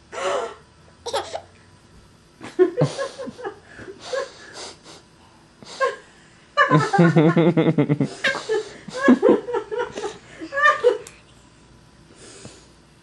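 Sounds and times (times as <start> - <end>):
baby giggling and vocalizing: 1.1 - 1.5.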